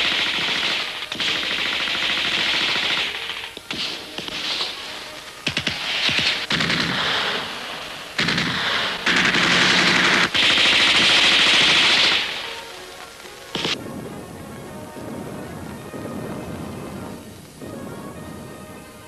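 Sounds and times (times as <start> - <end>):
machine-gun fire and gunshots: 0.0 - 12.8, 13.5 - 13.8.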